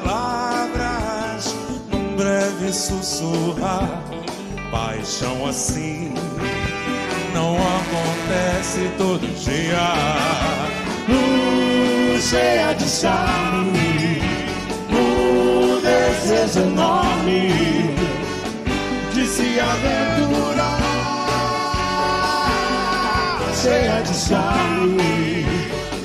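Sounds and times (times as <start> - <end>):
big band playing: 0.0 - 26.0
several singers singing: 9.4 - 26.0.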